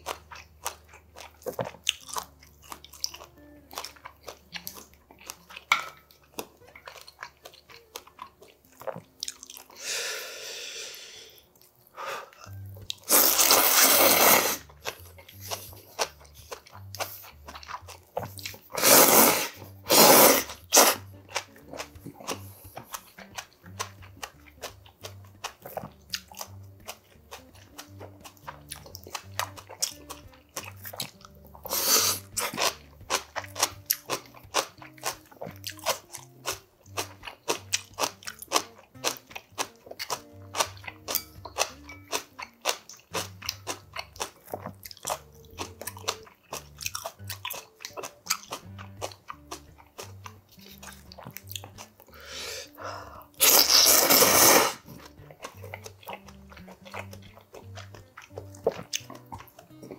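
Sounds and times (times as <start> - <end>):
wet chewing and crunching: 0.0 - 9.9, 11.4 - 59.9
quiet background music: 0.0 - 59.9
slurping noodles: 12.4 - 21.2, 28.3 - 34.7, 52.1 - 55.9.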